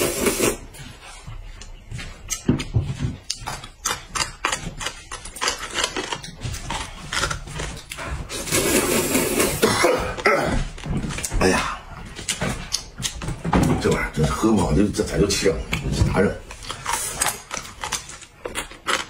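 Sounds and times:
slurping noodles: 0:00.0 - 0:00.6, 0:08.0 - 0:10.0
wet chewing and lip clicks: 0:01.6 - 0:08.1, 0:12.2 - 0:13.2.

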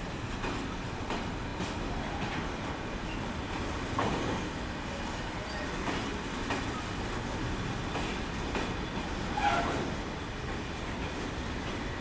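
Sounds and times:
freight train rumbling past: 0:00.0 - 0:12.0.

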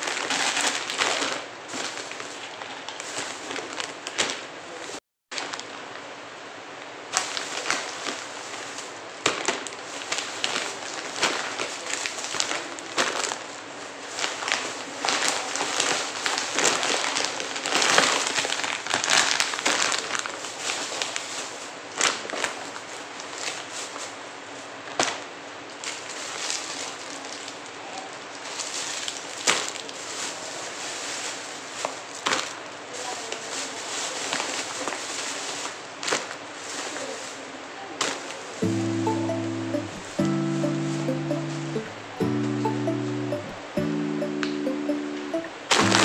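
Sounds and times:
plastic wrappers crinkling: 0:00.0 - 0:04.5, 0:07.2 - 0:24.2, 0:25.8 - 0:37.4.

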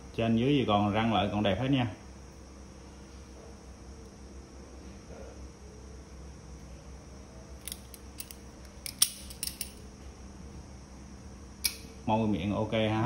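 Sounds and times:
pliers metal clicks: 0:07.6 - 0:09.8.

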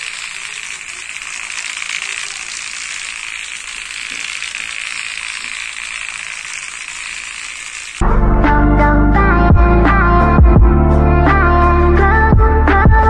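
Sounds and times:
small electric motor buzzing: 0:00.0 - 0:08.0
toy body rattling on floor: 0:00.0 - 0:08.0
music: 0:08.0 - 0:13.0.

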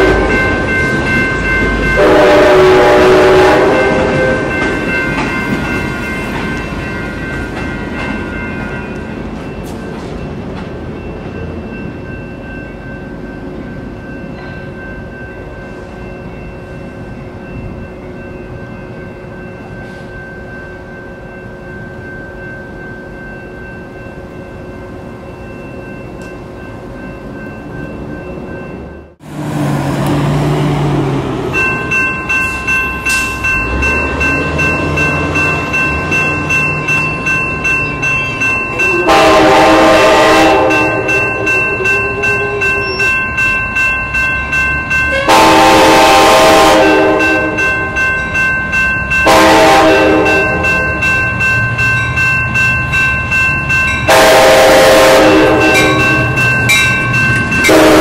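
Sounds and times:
train horn blasts: 0:00.0 - 0:00.5, 0:01.9 - 0:04.6, 0:38.8 - 0:43.1, 0:45.1 - 0:47.8, 0:49.2 - 0:50.8, 0:54.1 - 0:56.2, 0:57.7 - 0:58.0
railroad crossing bell ringing: 0:00.0 - 0:29.3, 0:30.5 - 0:58.0
low rumble of train: 0:00.0 - 0:58.0.

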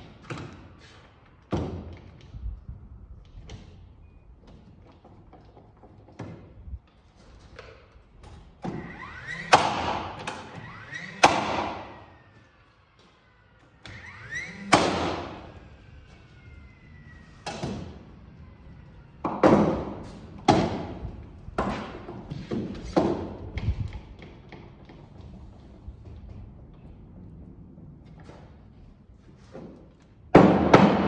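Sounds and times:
nail gun motor whining: 0:08.6 - 0:17.9.

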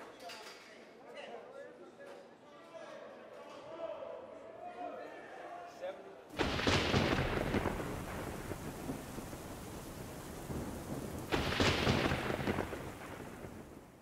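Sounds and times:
steady rain: 0:06.4 - 0:14.0
thunder rumbling: 0:06.4 - 0:14.0.

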